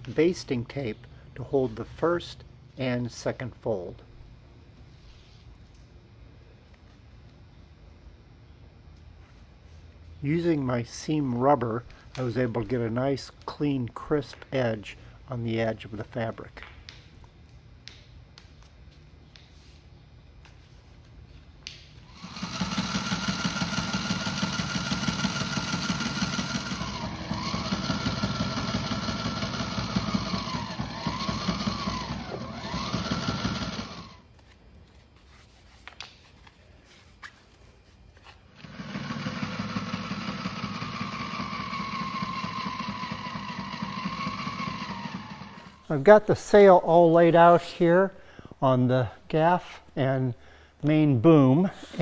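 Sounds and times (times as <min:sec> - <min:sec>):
sewing machine running: 0:22.1 - 0:34.2, 0:38.5 - 0:45.8.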